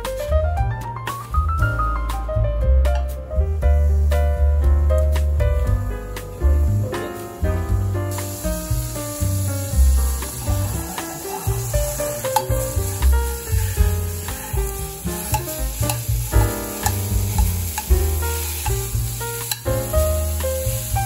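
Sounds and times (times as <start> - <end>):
background music with bass: 0.0 - 21.0
meat sizzling in frying pan: 5.0 - 21.0
chopsticks tapping pan: 10.2 - 20.6.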